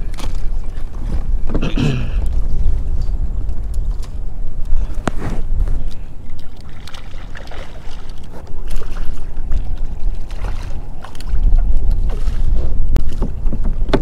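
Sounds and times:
wind rumbling on microphone: 0.0s - 14.0s
fish splashing in water: 6.3s - 13.2s.

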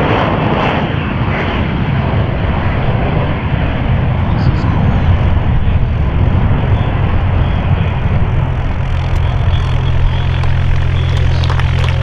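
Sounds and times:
jet engine roaring: 0.0s - 12.0s
low drone: 0.0s - 12.0s.

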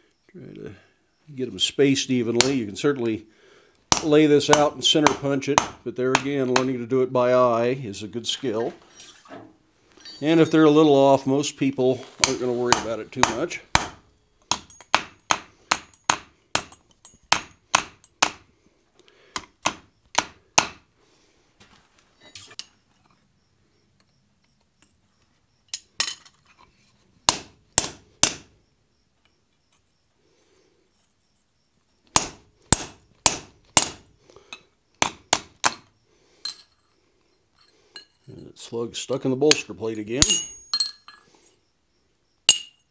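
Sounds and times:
hammer striking punch on anvil: 12.2s - 18.4s, 40.2s - 40.9s, 42.5s - 42.8s.

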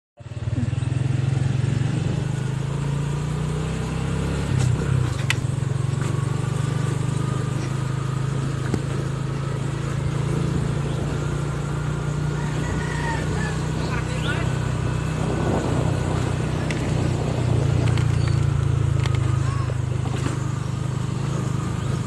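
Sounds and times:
small motorcycle engine running: 0.2s - 22.0s.

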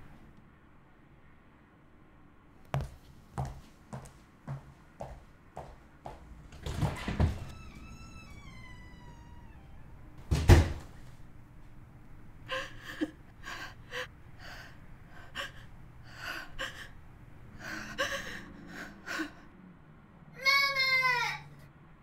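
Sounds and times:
door slamming: 6.6s - 11.0s
woman sobbing: 12.5s - 19.4s.

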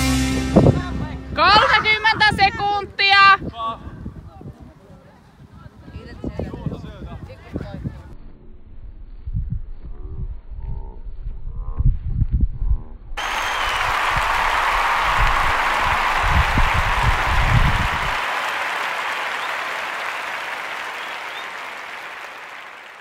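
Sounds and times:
wind buffeting microphone: 0.6s - 8.2s, 13.7s - 18.2s
crowd applauding and cheering: 13.2s - 23.0s
players shouting: 13.2s - 23.0s.

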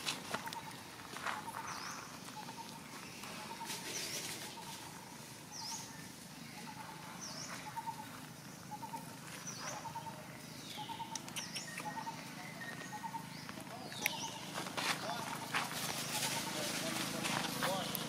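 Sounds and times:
wild birds calling: 0.0s - 18.0s.

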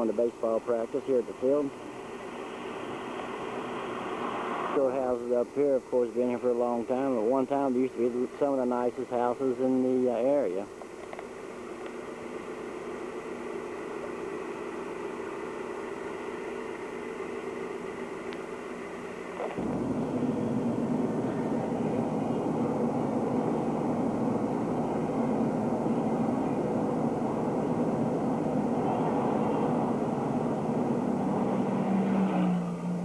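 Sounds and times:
car engine and road noise: 0.0s - 7.7s, 9.2s - 33.0s.

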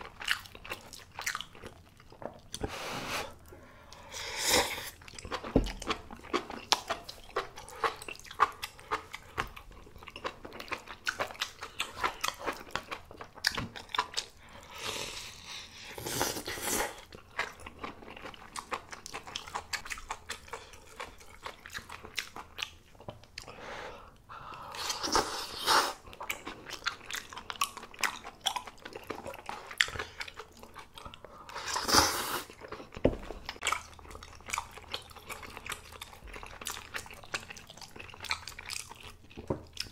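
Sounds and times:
person chewing: 0.0s - 39.9s.

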